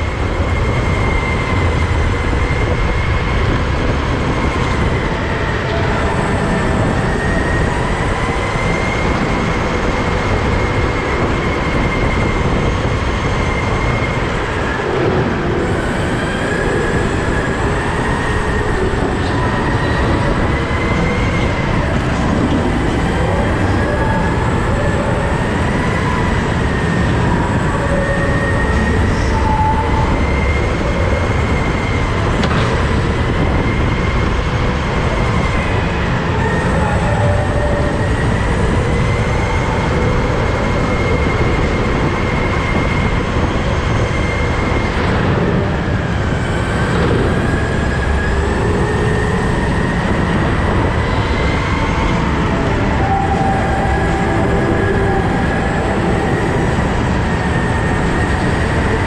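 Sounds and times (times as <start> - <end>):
go-kart engine whining: 0.0 - 59.0.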